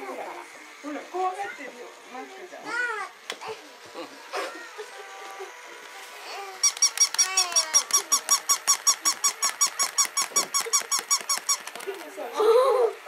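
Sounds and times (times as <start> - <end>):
toy dog squeaking chirps: 6.6 - 11.8.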